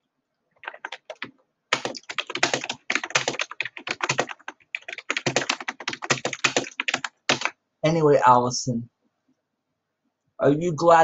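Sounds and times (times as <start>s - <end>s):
typing on computer keyboard: 0.6s - 7.6s.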